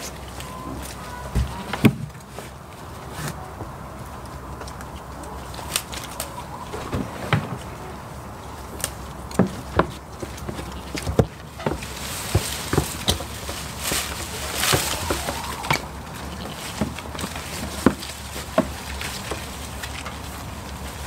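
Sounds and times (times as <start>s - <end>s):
rustling: 0.0s - 21.0s
hooves knocking on plastic tubs: 9.2s - 20.8s.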